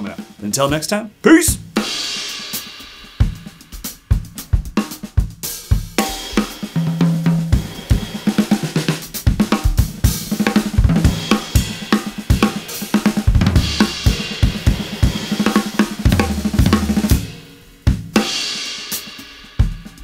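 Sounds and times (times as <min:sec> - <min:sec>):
drum kit playing: 0:00.0 - 0:20.0
cymbal crashes: 0:11.1 - 0:17.5.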